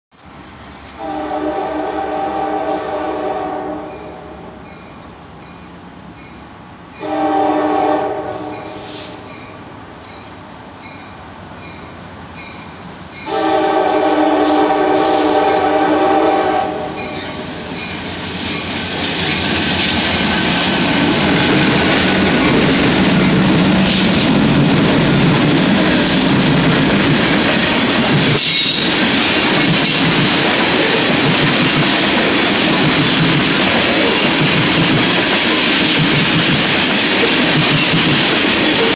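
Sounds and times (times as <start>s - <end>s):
diesel locomotives passing: 0.2s - 38.9s
train horn: 1.0s - 4.6s, 7.0s - 9.4s, 13.2s - 17.7s
freight cars rumbling and clacking: 17.1s - 38.9s.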